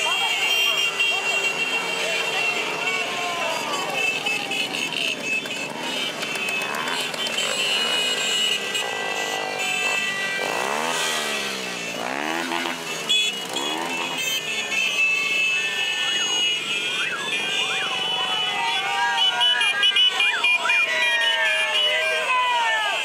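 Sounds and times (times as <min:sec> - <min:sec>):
motorcycles and scooters revving past: 0:00.1 - 0:18.5.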